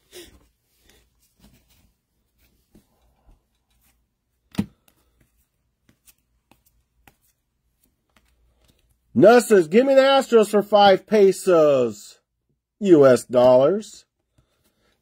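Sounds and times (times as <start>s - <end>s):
cards flipping and sliding: 3.6s - 9.0s.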